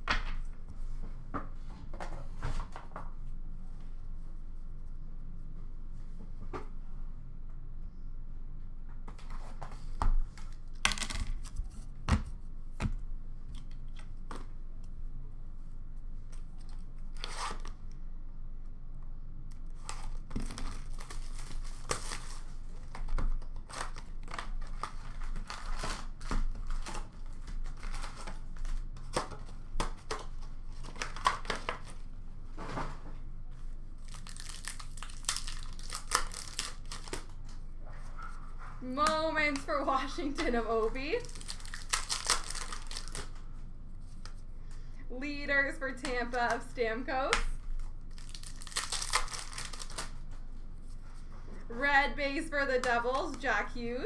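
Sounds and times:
plastic wrappers tearing and crinkling: 19.8s - 29.2s, 34.0s - 37.5s, 41.2s - 43.4s, 47.7s - 50.2s.

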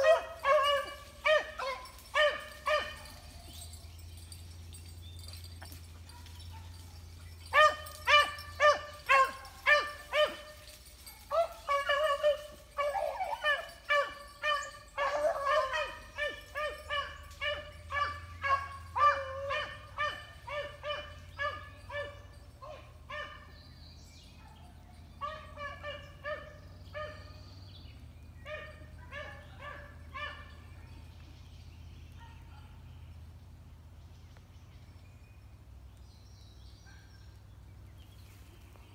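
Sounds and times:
beagles baying: 0.0s - 23.8s, 24.5s - 27.6s, 28.3s - 31.1s.

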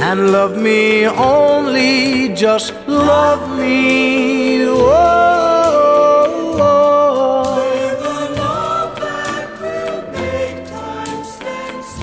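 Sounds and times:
slow love song: 0.0s - 12.0s.

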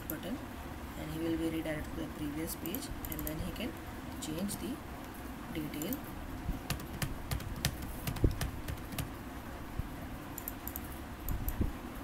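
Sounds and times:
computer keyboard typing: 2.6s - 3.4s, 6.7s - 9.2s, 10.4s - 10.9s.

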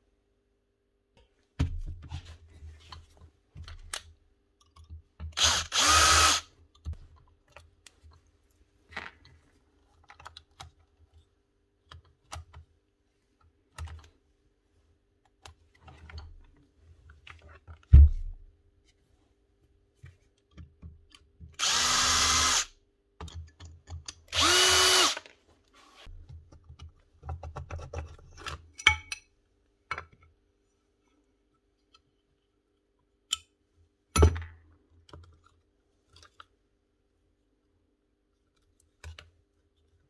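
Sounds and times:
cordless drill running: 5.4s - 6.5s, 21.6s - 22.7s, 24.3s - 25.2s.

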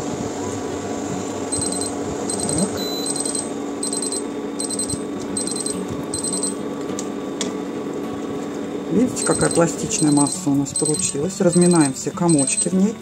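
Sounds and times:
cooktop beeping: 1.5s - 6.6s, 9.1s - 13.0s.

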